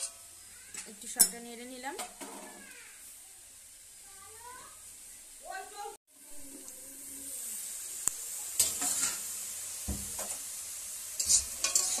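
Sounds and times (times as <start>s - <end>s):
greens sizzling in a wok: 0.0s - 12.0s
spatula scraping a wok: 8.6s - 9.5s, 11.1s - 12.0s
metal lid clatter: 11.2s - 12.0s.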